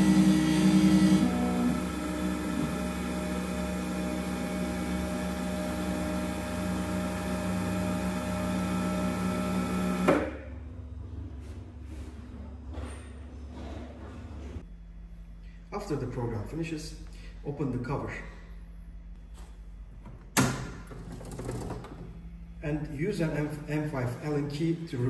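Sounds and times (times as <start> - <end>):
lathe motor hum with whine: 0.0 - 11.1
faint hum: 10.4 - 20.9.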